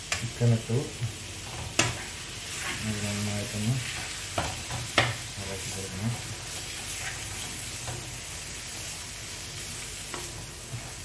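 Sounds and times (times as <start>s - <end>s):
chicken sizzling in a frying pan: 0.0s - 11.0s
spatula scraping a pan: 1.4s - 5.2s, 6.1s - 8.2s.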